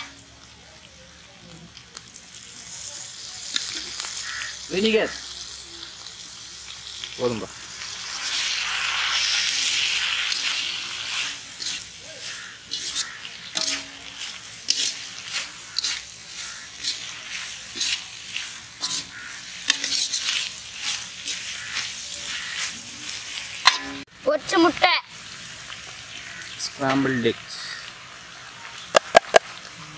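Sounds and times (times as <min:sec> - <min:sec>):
meat sizzling in a pan: 0:00.0 - 0:29.9
metal spatula scraping a pan: 0:07.8 - 0:24.1.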